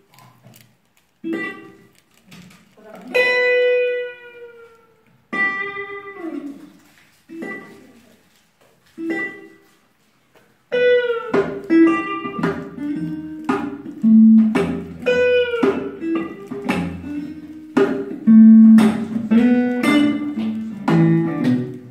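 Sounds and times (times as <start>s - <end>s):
plucked guitar chords: 1.2s - 1.9s, 3.1s - 4.7s, 5.3s - 6.5s, 10.7s - 21.9s
acoustic band playing: 10.7s - 21.9s.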